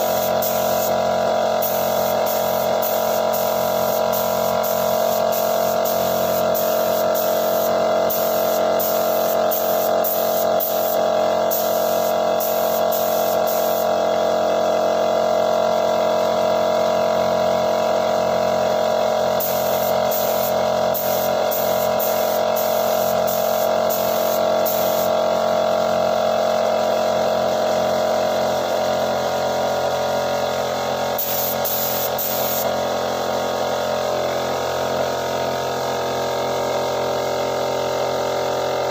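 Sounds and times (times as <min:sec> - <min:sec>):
spray gun hissing: 0:00.0 - 0:14.0, 0:19.4 - 0:25.2, 0:31.1 - 0:32.8
air compressor droning: 0:00.0 - 0:38.9.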